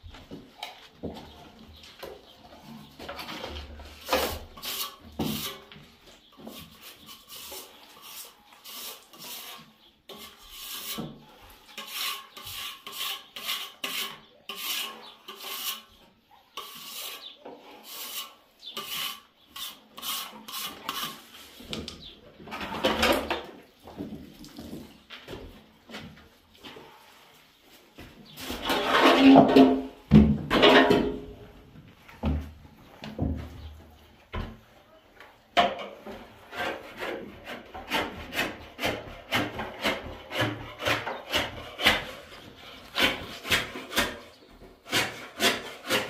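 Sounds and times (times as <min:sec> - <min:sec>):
trowel scraping wet plaster: 0:03.3 - 0:16.0, 0:16.6 - 0:21.6, 0:36.5 - 0:46.0.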